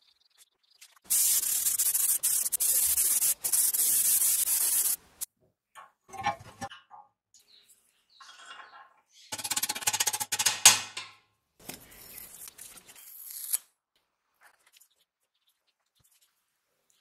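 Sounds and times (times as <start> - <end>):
paint spray gun hissing: 1.1 - 5.0
metal parts knocking: 9.4 - 11.2.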